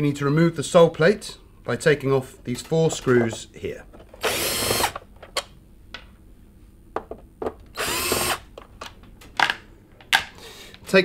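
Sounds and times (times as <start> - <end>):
cordless drill whirring: 4.2 - 5.0, 7.8 - 8.5.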